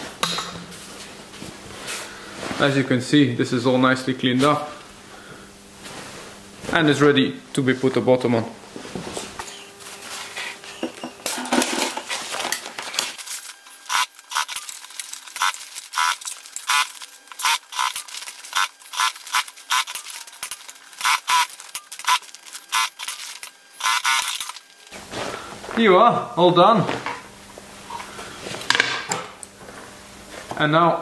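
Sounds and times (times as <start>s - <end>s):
fabric rustling: 24.6s - 25.8s.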